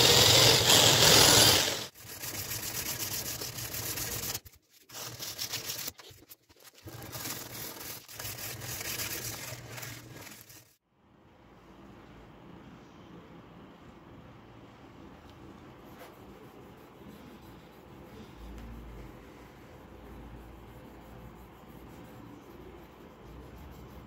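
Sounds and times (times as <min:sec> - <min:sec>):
electric drill sanding wood: 0:00.0 - 0:01.9.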